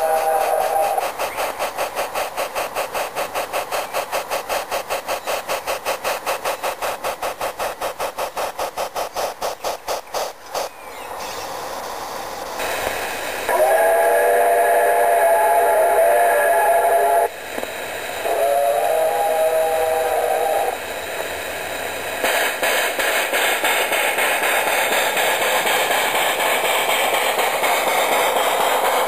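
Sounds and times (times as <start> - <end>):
multi-note train whistle: 0.0 - 1.1, 13.5 - 17.3, 18.2 - 20.8
steam hiss: 0.0 - 29.0
steam locomotive chuffing: 0.0 - 29.0.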